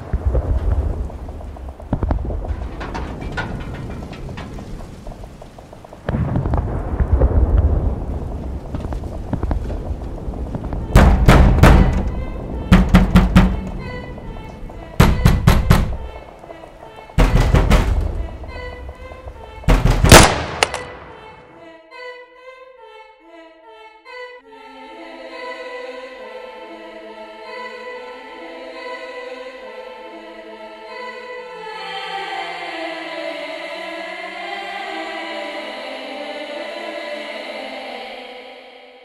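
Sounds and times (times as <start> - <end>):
loud bang: 0.0 - 8.2, 9.4 - 21.6
choir holding long chords: 10.4 - 39.0.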